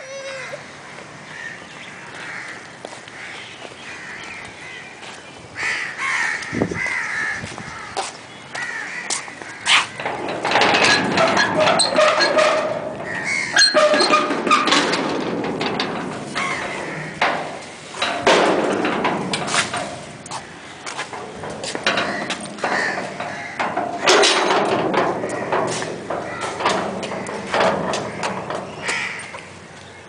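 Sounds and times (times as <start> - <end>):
crows cawing: 0.9 - 4.9, 5.6 - 10.0, 13.0 - 13.6, 16.4 - 17.2, 22.0 - 23.6, 25.2 - 27.2, 28.1 - 29.5
sharp knocks: 9.7 - 29.5.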